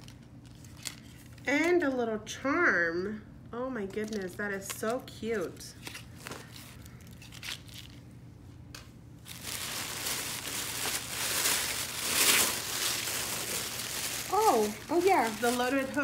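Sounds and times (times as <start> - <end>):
gift wrap crinkling: 5.8 - 8.0, 9.2 - 16.0.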